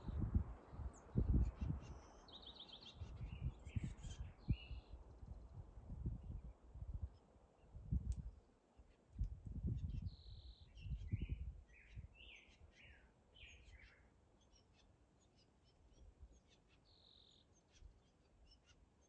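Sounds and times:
wind buffeting microphone: 0.0s - 2.0s, 3.0s - 7.1s, 7.7s - 8.3s, 9.2s - 12.2s
songbird singing: 0.0s - 19.0s.

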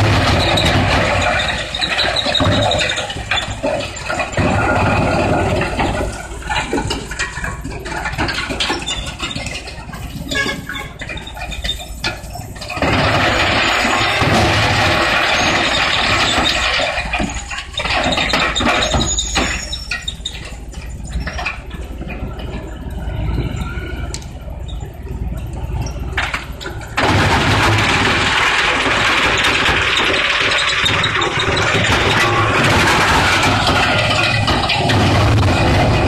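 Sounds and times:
steady machine noise: 20.1s - 36.0s.

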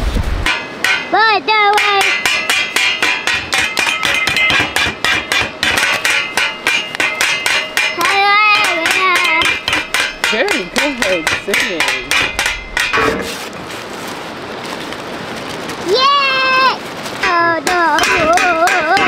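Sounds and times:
wooden spoons clanking on metal pot: 0.4s - 13.6s, 17.2s - 19.0s
child calling out happily: 8.0s - 9.5s, 15.8s - 19.0s.

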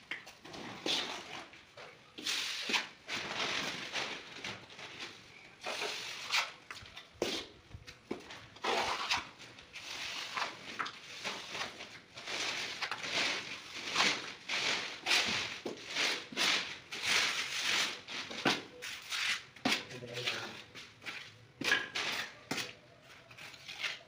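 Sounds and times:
trowel scraping adhesive: 8.6s - 11.5s, 12.8s - 20.5s, 21.6s - 24.0s.

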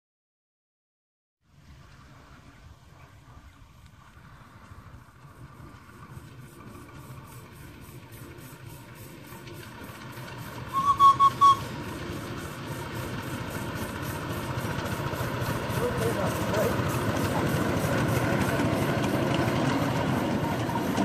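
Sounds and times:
miniature locomotive engine running: 4.0s - 21.0s
locomotive whistle toots: 10.6s - 12.0s.

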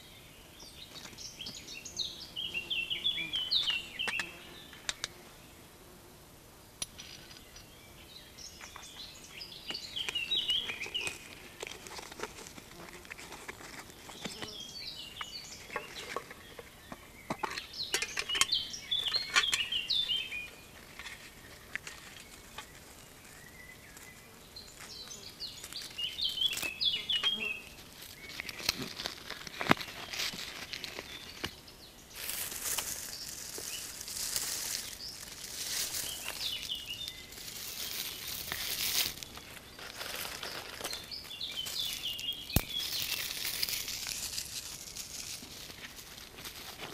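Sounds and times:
rustling: 8.6s - 16.8s, 19.0s - 46.9s
dry twigs snapping and crackling: 24.8s - 31.6s, 32.2s - 46.9s.

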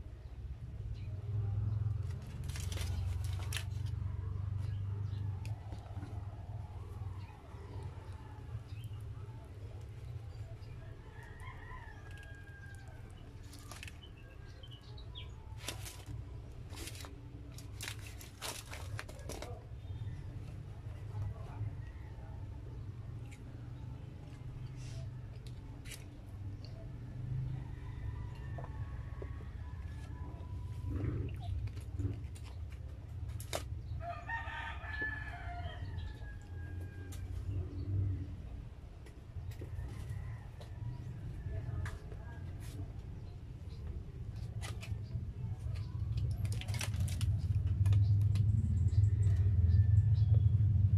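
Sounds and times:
foil and paper crinkling: 2.0s - 3.9s, 13.3s - 14.0s, 15.6s - 19.6s, 46.2s - 47.4s
rooster crowing: 11.0s - 13.2s, 27.5s - 30.2s, 34.0s - 37.4s.

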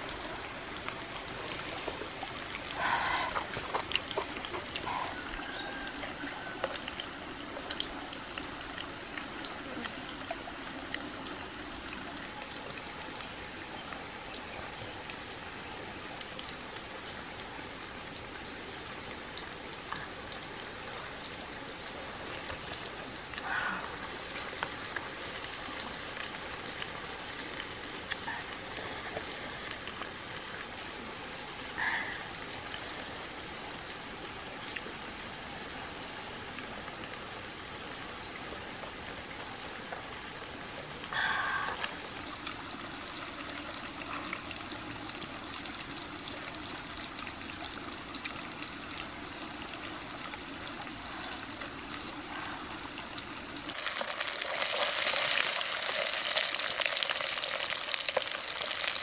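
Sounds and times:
high-pitched animal drone: 0.0s - 7.4s, 12.2s - 47.0s
continuous hiss: 0.0s - 59.0s.

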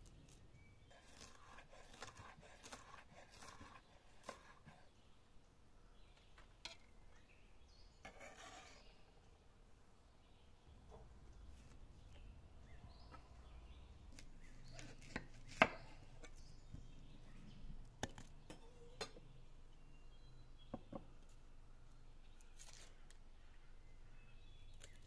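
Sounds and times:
onion rustling: 0.0s - 4.7s, 22.5s - 23.1s.

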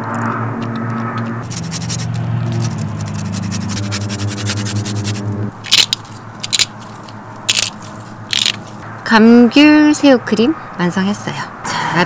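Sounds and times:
rasp grater scraping: 1.4s - 6.0s.

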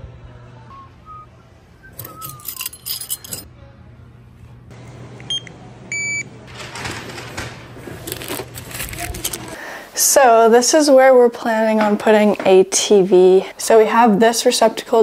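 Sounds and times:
low store hum: 0.0s - 9.9s
items clattering: 2.0s - 3.5s, 6.5s - 9.6s
register beeps: 5.3s - 6.3s.

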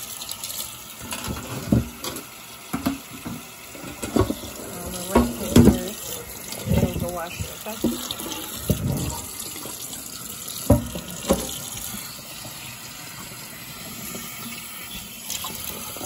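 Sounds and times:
tap water splashing into pot: 1.0s - 12.6s.

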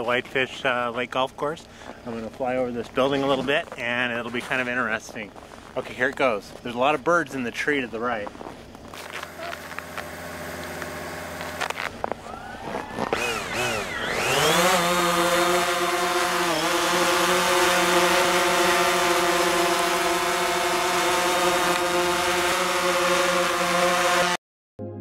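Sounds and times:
drone motors whining: 8.8s - 24.4s
drone hovering buzz: 8.9s - 24.4s.

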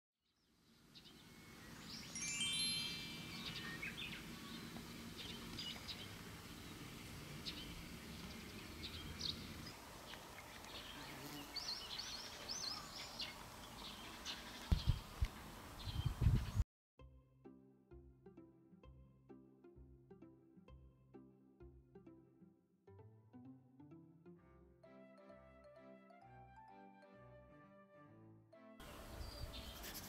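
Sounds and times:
small birds chirping: 0.4s - 16.6s, 28.9s - 30.0s
descending chime tones: 1.8s - 4.1s.

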